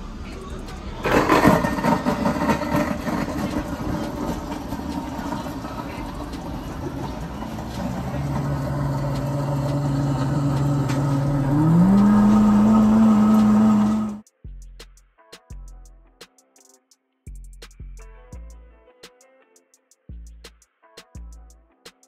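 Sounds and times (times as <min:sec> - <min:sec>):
blender motor running: 0:01.2 - 0:14.2.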